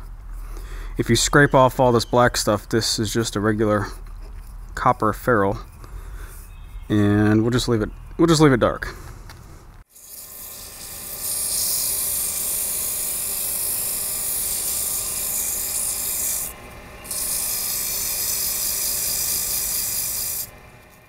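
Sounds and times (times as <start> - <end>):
sandpaper hissing on wood: 9.9 - 20.6
lathe running: 10.0 - 21.0.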